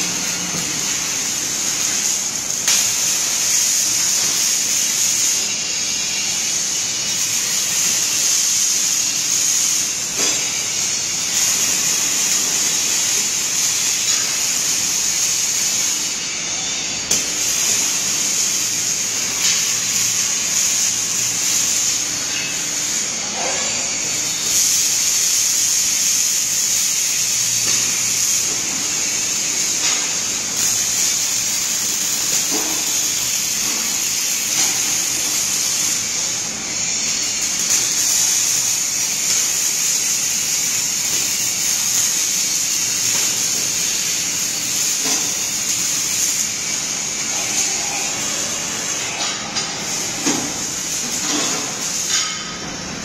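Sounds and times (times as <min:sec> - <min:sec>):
welding arc hissing: 0:00.0 - 0:53.0.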